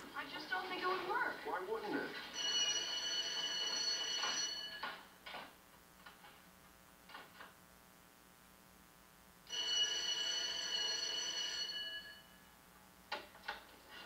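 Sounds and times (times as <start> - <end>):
electric school bell ringing: 2.3 - 5.0, 9.5 - 12.5.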